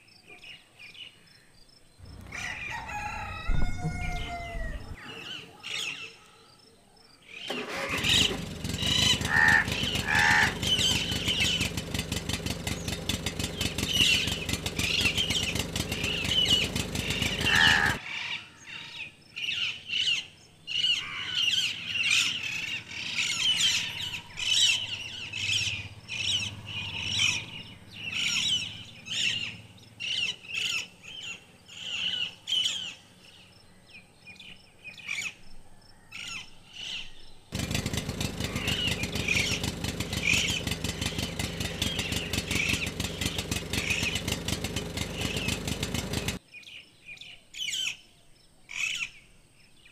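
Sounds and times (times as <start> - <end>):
birds chirping: 0.0 - 49.9
engine running: 2.0 - 5.0, 7.4 - 18.1, 20.8 - 33.5, 37.5 - 46.4.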